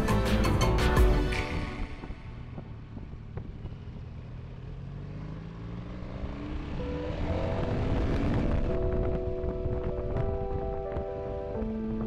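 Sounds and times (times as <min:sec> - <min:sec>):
music: 0:00.0 - 0:02.7, 0:06.8 - 0:12.0
road and wind noise: 0:00.0 - 0:12.0
motorcycle engine accelerating: 0:01.1 - 0:12.0.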